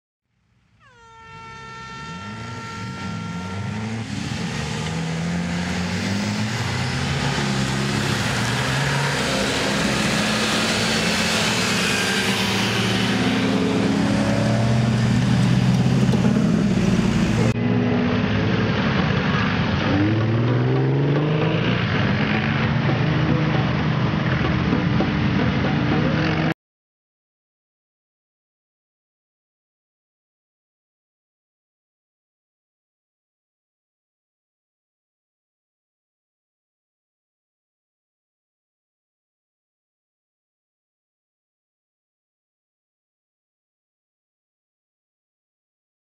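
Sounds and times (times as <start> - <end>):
truck engines revving: 1.1 - 26.6.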